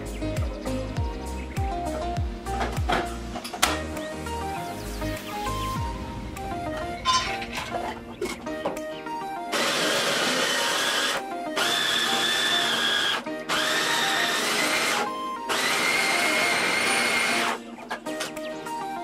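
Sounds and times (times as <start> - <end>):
food processor motor whining: 9.5 - 17.6.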